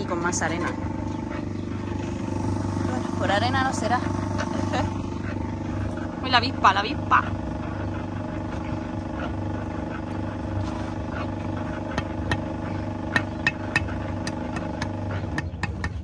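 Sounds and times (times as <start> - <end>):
engine-like hum: 0.0 - 16.0
hammer tapping concrete block: 13.2 - 16.0.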